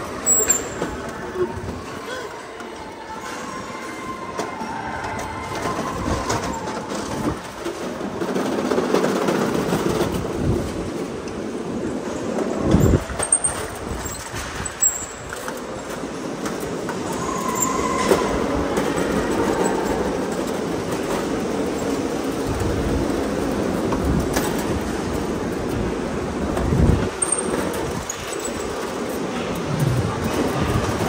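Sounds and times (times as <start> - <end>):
go-kart rattling rumble: 4.9 - 31.0
tyre squeals: 17.0 - 18.6.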